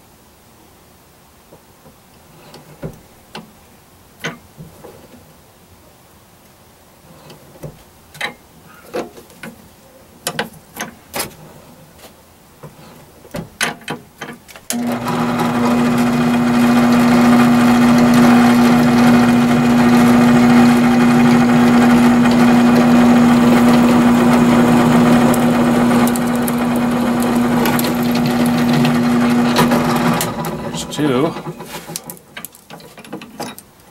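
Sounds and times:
drill press motor humming: 14.7 - 31.7.

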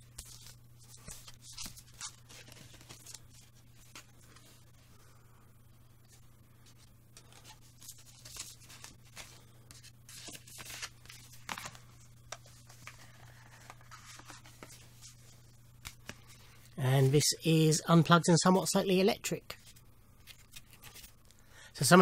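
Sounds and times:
disc and card rustling: 0.0 - 4.7, 6.1 - 16.7
steady low hum: 0.0 - 22.0.

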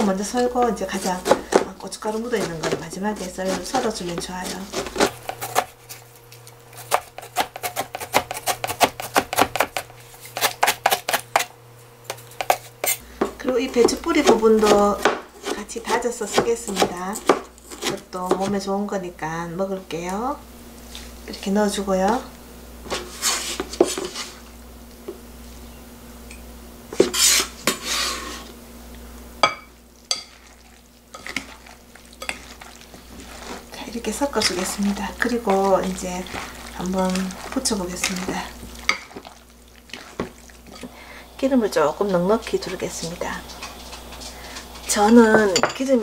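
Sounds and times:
knife chopping on cutting board: 0.9 - 5.7, 6.8 - 11.5, 12.1 - 18.5
utensil clinking glass bowl: 29.4 - 30.6, 45.0 - 45.8.

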